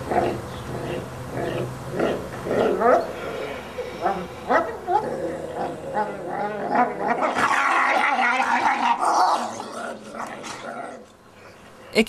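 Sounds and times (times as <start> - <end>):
wolves whining and snarling: 0.0 - 11.6.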